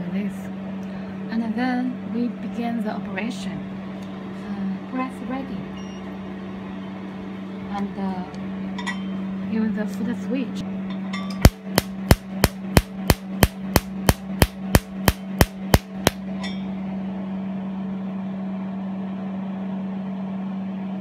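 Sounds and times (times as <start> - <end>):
steady low hum: 0.0 - 21.0
laser firing sharp snaps: 11.5 - 16.2.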